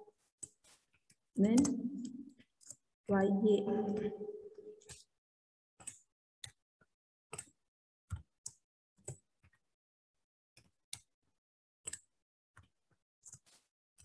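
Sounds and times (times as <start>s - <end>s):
faint clicks and taps: 5.8s - 9.7s.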